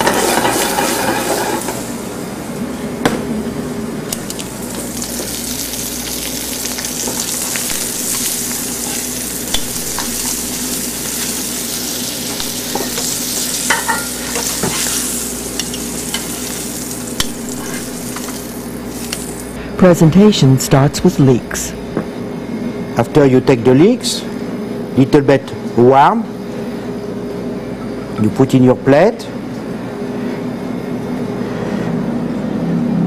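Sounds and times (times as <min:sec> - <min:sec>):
food sizzling in a pan: 0:00.0 - 0:02.1, 0:04.2 - 0:19.6.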